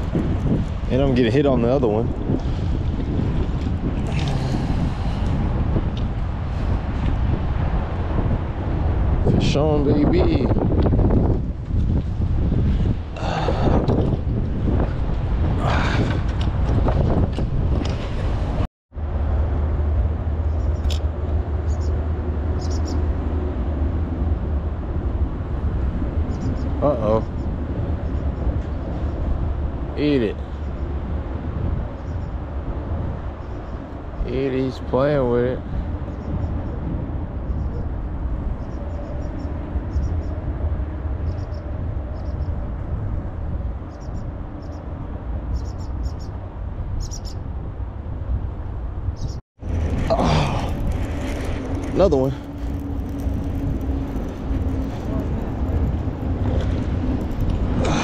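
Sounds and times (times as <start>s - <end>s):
wind buffeting microphone: 0.0s - 58.0s
small bird chirping: 21.7s - 22.0s, 22.6s - 23.0s, 38.6s - 40.3s, 41.3s - 42.5s, 43.9s - 44.8s, 45.5s - 46.4s, 47.0s - 47.4s, 49.2s - 49.4s.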